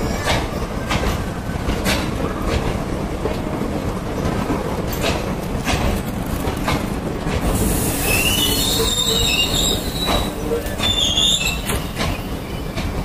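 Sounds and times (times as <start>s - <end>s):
train coaches rumbling past: 0.0s - 13.0s
wheels clacking over rail joints: 0.0s - 13.0s
high-pitched wheel squeal: 8.0s - 11.8s.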